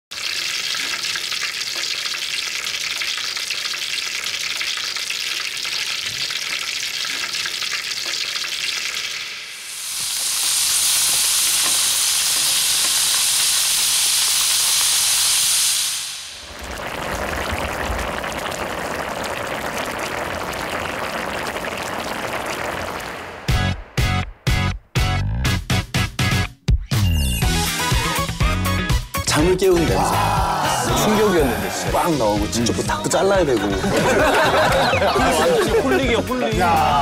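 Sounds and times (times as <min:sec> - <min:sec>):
chicken deep-frying in oil: 0:00.1 - 0:23.4, 0:31.9 - 0:36.5.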